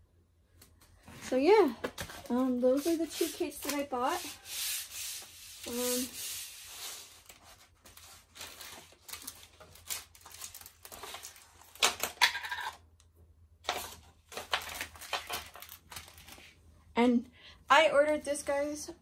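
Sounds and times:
plastic and canvas crinkling: 7.2s - 11.8s.

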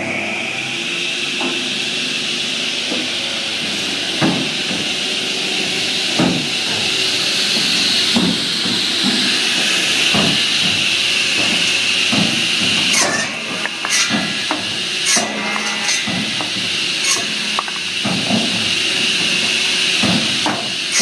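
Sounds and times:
machine whine and hiss: 0.0s - 21.0s
sharp knocks: 12.2s - 18.6s.

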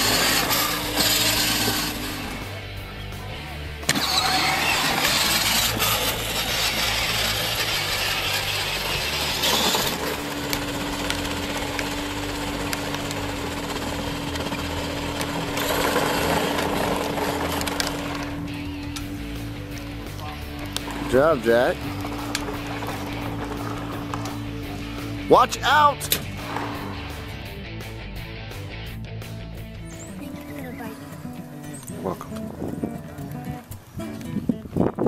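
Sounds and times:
electric motor whining: 0.0s - 28.9s
plastic tyres rumbling on asphalt: 3.9s - 25.2s.

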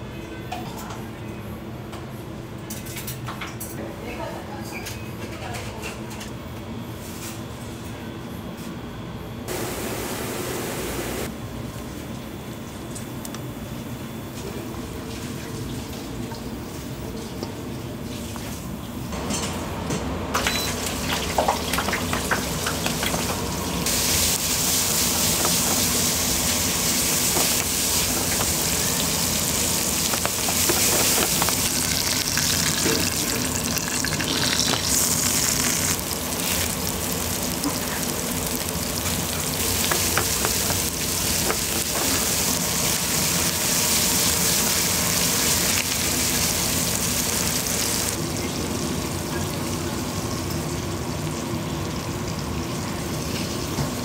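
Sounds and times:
low kitchen hum: 0.0s - 54.0s
food sizzling in a frying pan: 20.4s - 54.0s.

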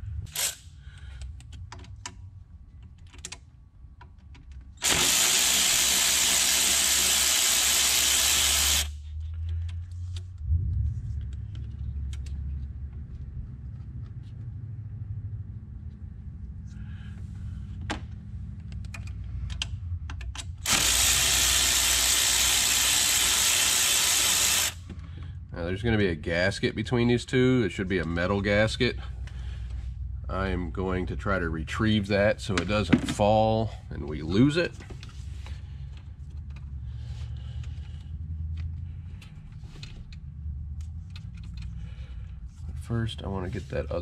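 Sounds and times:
cordless power tool whirring: 4.8s - 9.0s, 20.6s - 24.9s.

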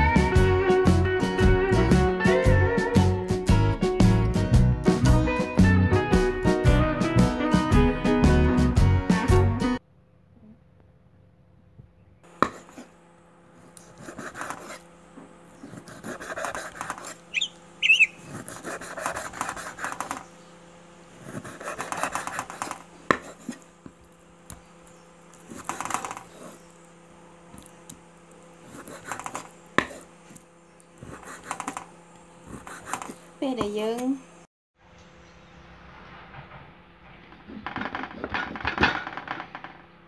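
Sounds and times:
cleaver chopping meat on wood: 21.4s - 24.0s.

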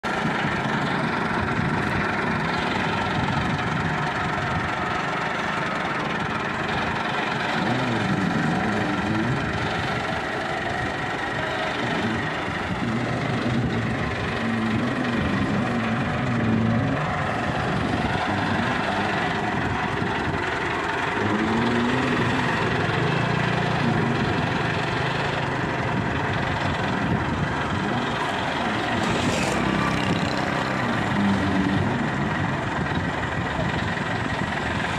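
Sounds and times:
tractor diesel engine under load: 0.0s - 34.9s.

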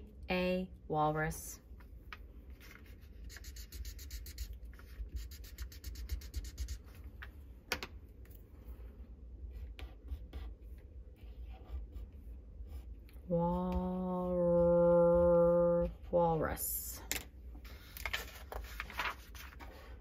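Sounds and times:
pencil strokes on paper: 2.6s - 7.0s, 9.4s - 16.5s
highlighter rubbing on paper: 3.2s - 6.9s.

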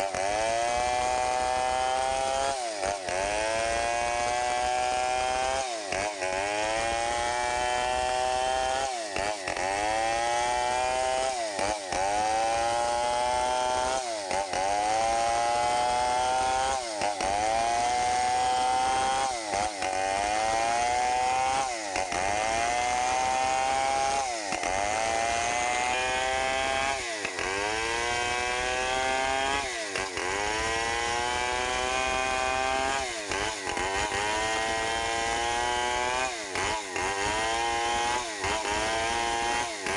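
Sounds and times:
chainsaw ripping a log: 0.0s - 39.9s.

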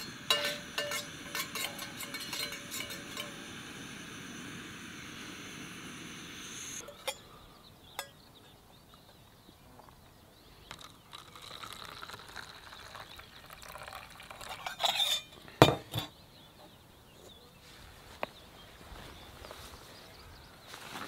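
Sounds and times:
spoon clinking against pot: 0.0s - 3.6s, 8.0s - 8.2s, 14.5s - 16.1s
coffee pouring into cup: 10.7s - 15.0s.

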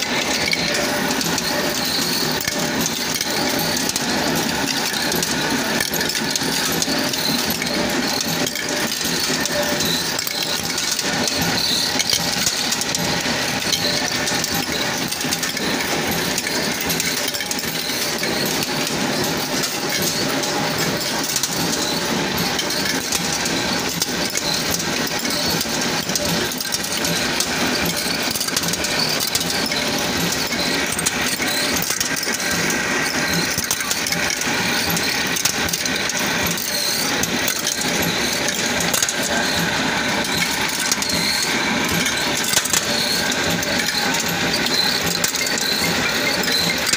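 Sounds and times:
factory machinery running: 0.0s - 46.9s.

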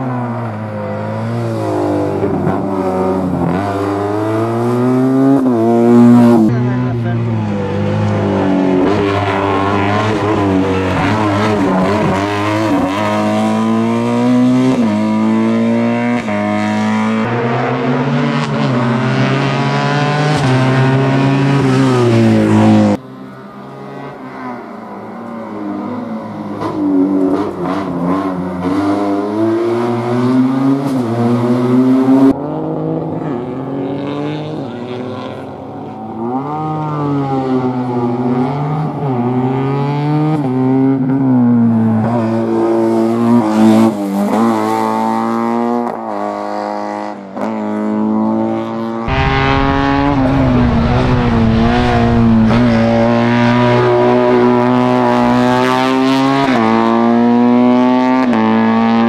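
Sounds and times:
car engine revving hard: 42.1s - 59.0s.

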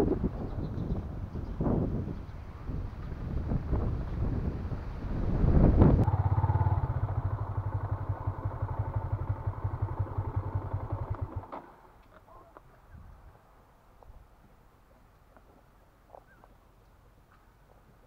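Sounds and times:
wind noise: 0.0s - 7.9s, 12.6s - 14.5s
motorcycle engine putter: 9.8s - 12.3s.

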